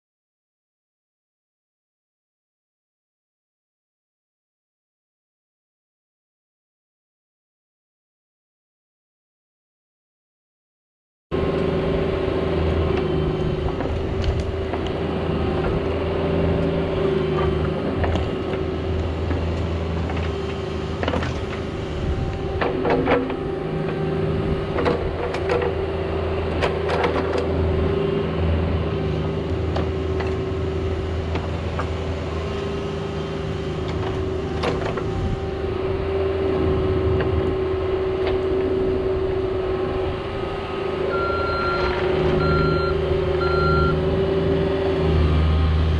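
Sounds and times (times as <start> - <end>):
diesel engine running under load: 11.4 - 45.9
reversing alarm beeping: 41.0 - 44.0.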